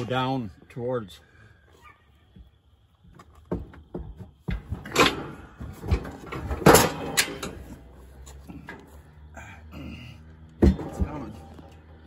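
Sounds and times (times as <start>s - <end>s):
metal chute clanking: 4.6s - 8.0s.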